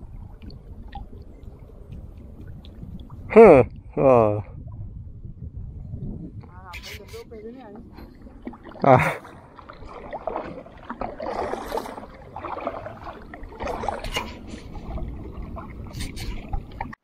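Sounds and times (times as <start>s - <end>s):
paddle splashing in water: 7.8s - 17.0s.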